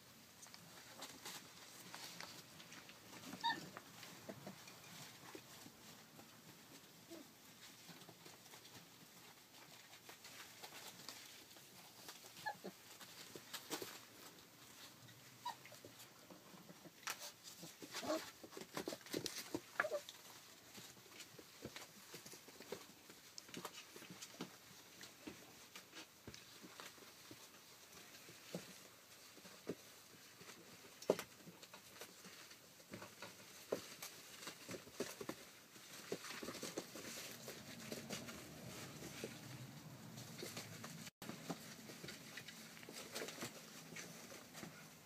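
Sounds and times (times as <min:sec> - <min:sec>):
puppy paws pattering: 0:00.0 - 0:45.0
puppy squeaks: 0:03.3 - 0:03.7, 0:12.4 - 0:12.7.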